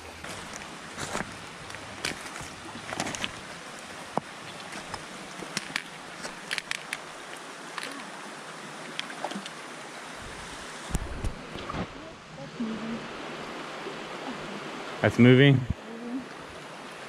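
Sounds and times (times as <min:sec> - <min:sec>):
river rushing over stones: 0:00.0 - 0:17.0
footsteps on stones: 0:00.2 - 0:08.1
trekking pole tips clicking: 0:04.7 - 0:07.1.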